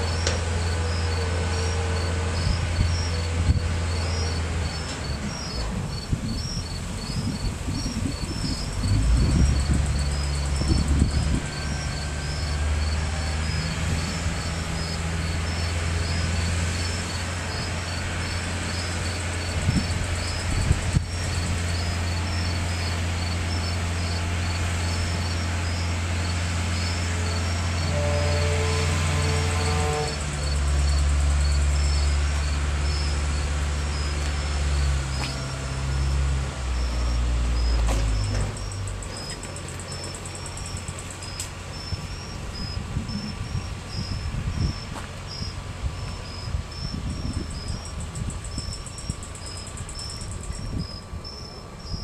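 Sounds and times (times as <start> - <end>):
heavy machinery engine humming: 0.0 - 52.0
night insects chirping: 0.0 - 52.0.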